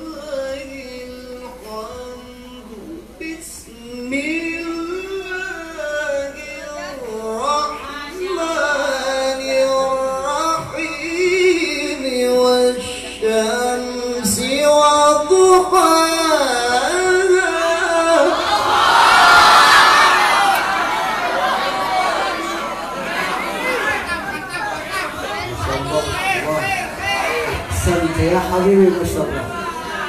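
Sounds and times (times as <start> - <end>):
man reciting melodically: 0.0 - 18.6, 25.3 - 30.0.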